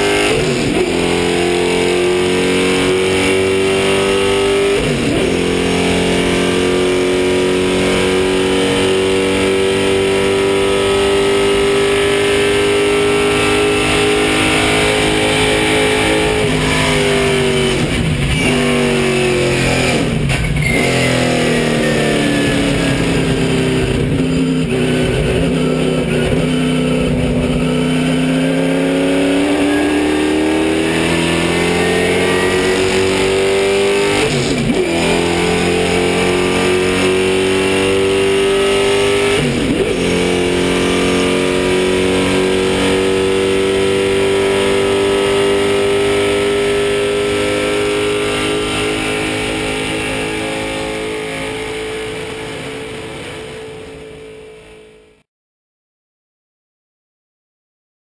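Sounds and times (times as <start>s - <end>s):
race car engine: 0.0s - 55.2s.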